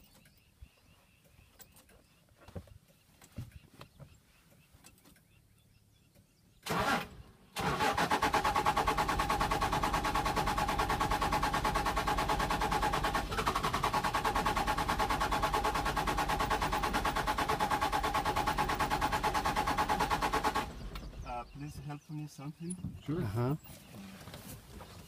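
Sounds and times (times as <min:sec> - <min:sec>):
starter motor cranking engine: 0:06.6 - 0:21.3.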